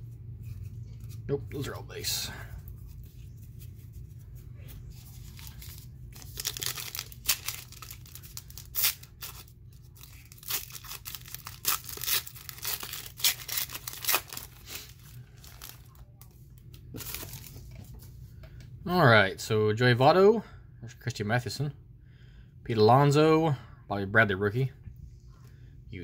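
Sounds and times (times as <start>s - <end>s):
foil wrapper ripping and crinkling: 5.0s - 16.0s.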